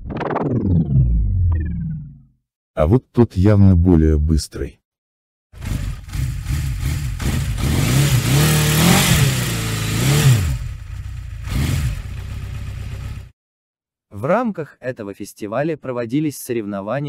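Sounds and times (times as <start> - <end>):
cartoon rocket motor revving: 5.6 - 10.6.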